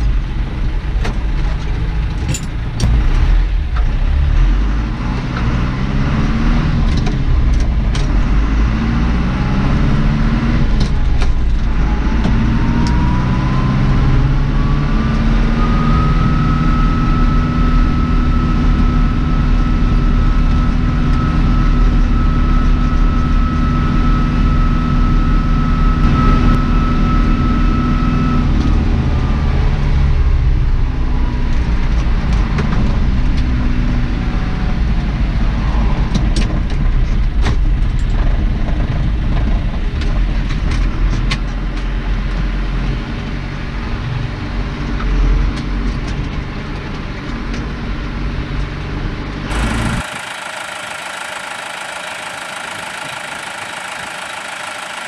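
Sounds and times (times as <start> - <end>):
tractor diesel engine: 0.0 - 55.0
high whine: 11.4 - 28.7, 49.5 - 55.0.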